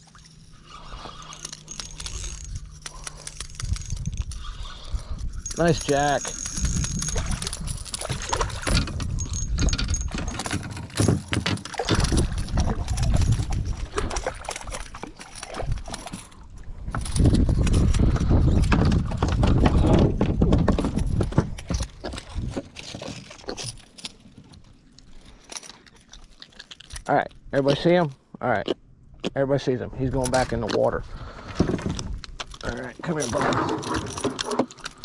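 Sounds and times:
fishing reel clicking and rattling: 0:00.2 - 0:16.2
wind buffeting microphone: 0:03.6 - 0:10.5, 0:11.8 - 0:14.9, 0:15.6 - 0:22.6.

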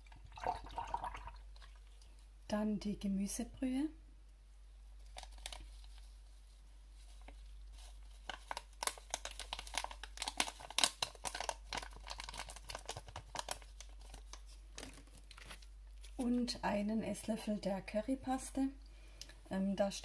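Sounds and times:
paper packet crinkling: 0:05.0 - 0:16.6.

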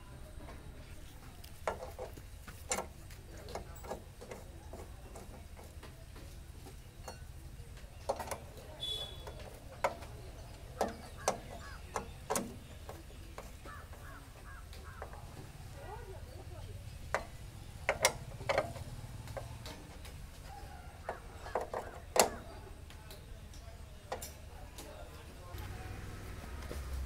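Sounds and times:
spanner clicking on metal: 0:08.0 - 0:15.2, 0:17.0 - 0:20.2, 0:21.0 - 0:22.5.

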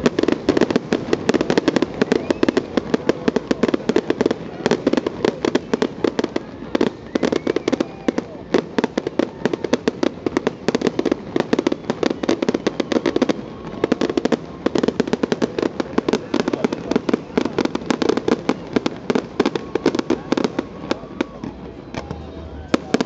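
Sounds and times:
fireworks bursting: 0:00.0 - 0:23.0.

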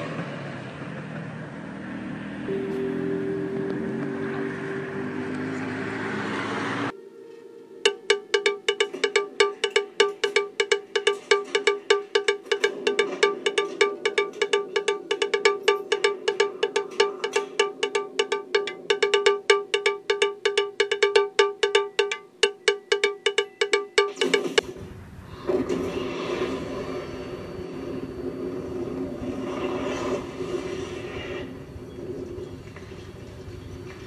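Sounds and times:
bouncy bright struck notes music: 0:07.8 - 0:24.6.

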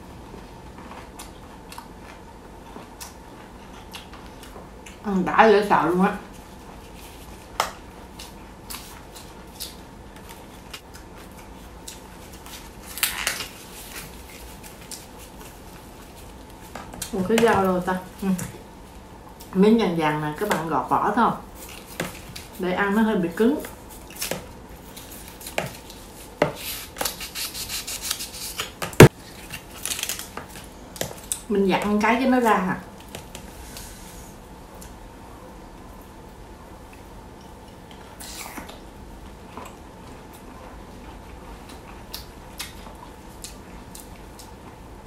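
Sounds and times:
knife scraping bamboo skin: 0:26.6 - 0:28.7.

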